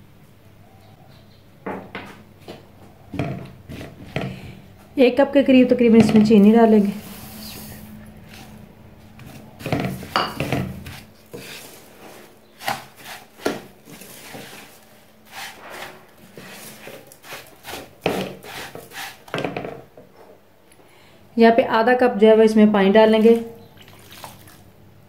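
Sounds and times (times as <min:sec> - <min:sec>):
wooden spatula scraping a bowl: 0:03.1 - 0:04.6, 0:05.9 - 0:19.7
spatula stirring in a pan: 0:06.0 - 0:08.6, 0:09.2 - 0:19.4.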